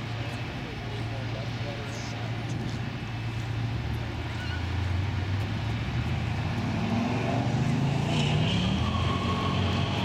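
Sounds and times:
distant diesel engine drone: 0.0s - 10.0s
engine rising in pitch: 6.5s - 10.0s.

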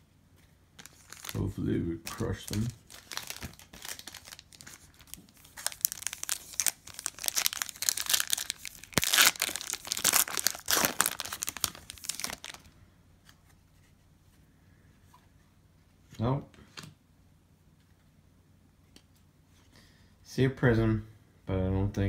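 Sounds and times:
foil wrapper tearing and crinkling: 0.8s - 12.7s.

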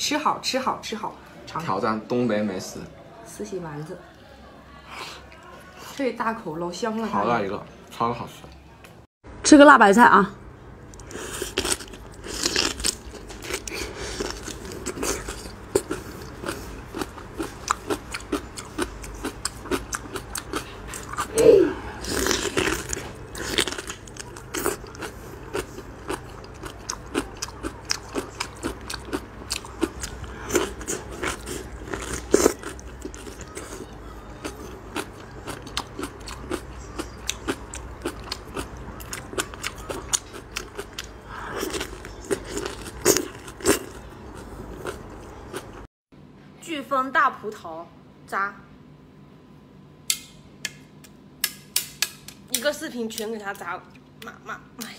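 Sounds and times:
chewing crisp cabbage: 10.9s - 21.3s, 21.9s - 45.9s.

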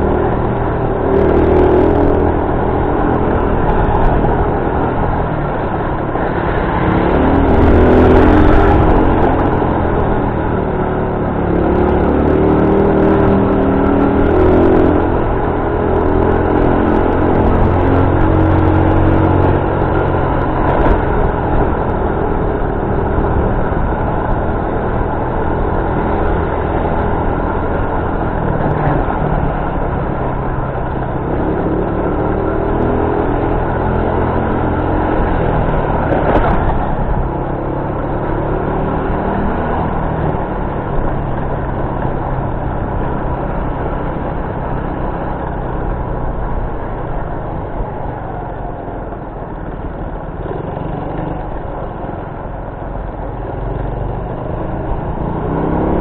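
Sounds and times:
wind and road noise: 0.0s - 56.0s.

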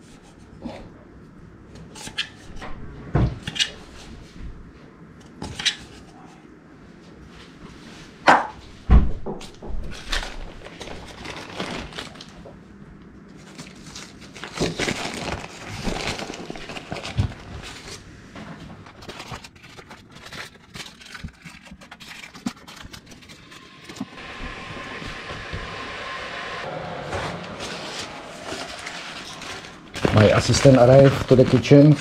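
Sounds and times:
crinkling and rustling: 9.4s - 12.6s, 13.3s - 24.1s, 27.1s - 32.0s.

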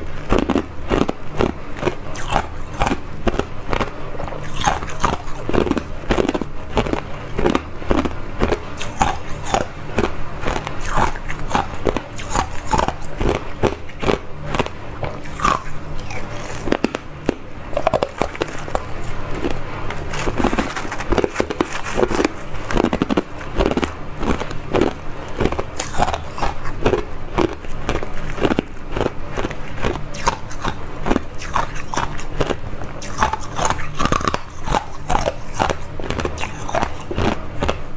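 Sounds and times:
ice being crunched in mouth: 15.2s - 37.8s.

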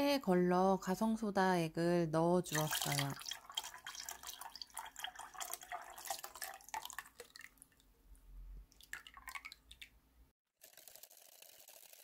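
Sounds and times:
liquid pouring and spattering: 2.5s - 7.9s, 8.7s - 10.0s.

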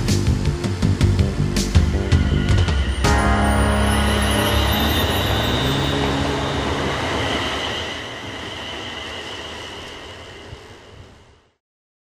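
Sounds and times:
train noise: 0.0s - 11.6s
steady high-pitched tones: 1.4s - 10.6s.

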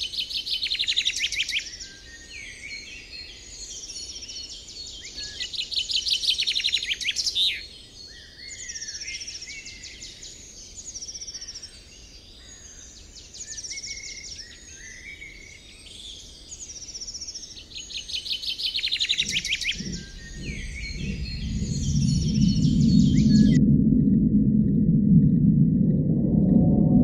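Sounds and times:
birds singing and chirping: 16.5s - 23.6s
bird trill: 18.4s - 23.6s
low rumbling drone: 19.0s - 27.0s.

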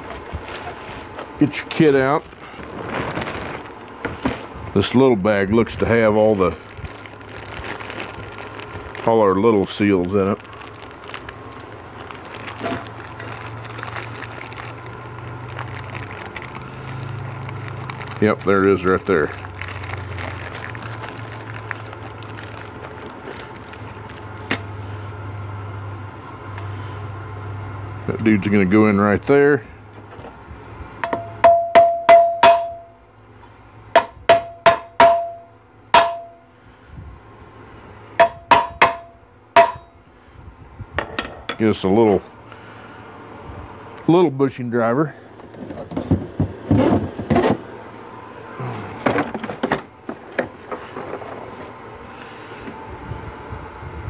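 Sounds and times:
plastic bag crinkling: 0.0s - 4.5s, 5.4s - 24.7s
steady low hum: 0.0s - 54.0s
hammer tapping metal: 31.0s - 33.0s, 34.0s - 36.4s, 38.2s - 39.9s.

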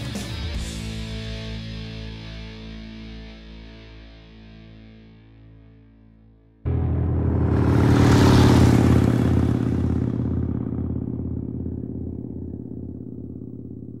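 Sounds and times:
motorcycle engine rumbling: 6.7s - 14.0s.

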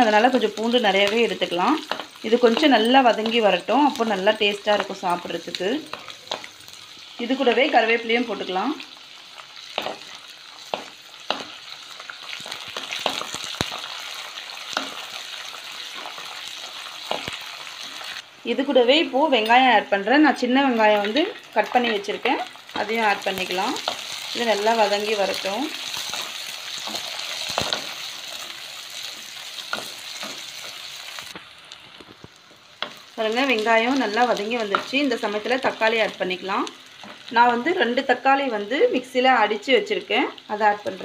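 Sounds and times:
spices sizzling in hot oil: 0.0s - 41.0s
sharp clicks and pops: 12.3s - 13.9s.

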